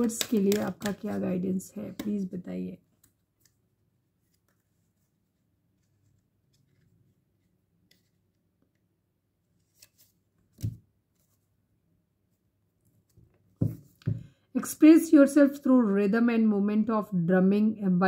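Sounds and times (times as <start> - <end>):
cards clicking and rustling: 0.0 - 2.3.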